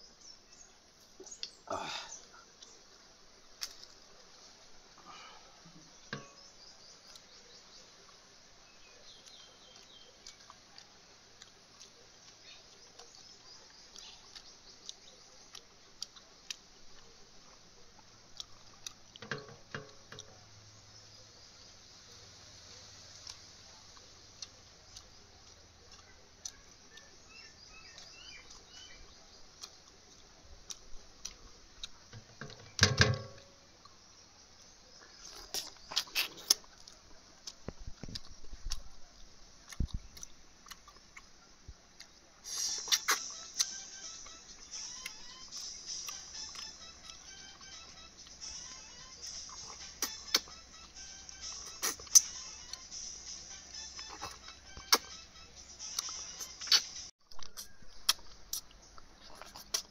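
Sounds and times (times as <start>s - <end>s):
short bird chirps: 42.4s - 45.8s.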